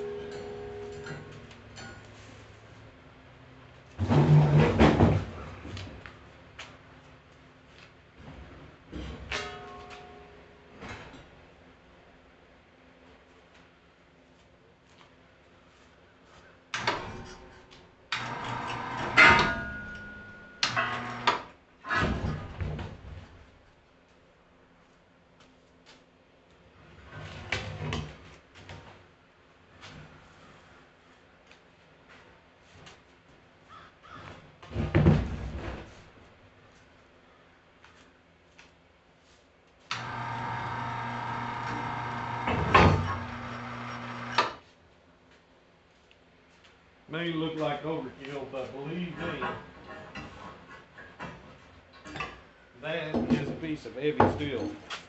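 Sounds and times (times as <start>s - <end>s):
metallic ringing tone: 0.0s - 2.0s, 19.3s - 20.6s
machine humming and hissing: 18.1s - 19.8s, 39.9s - 44.6s.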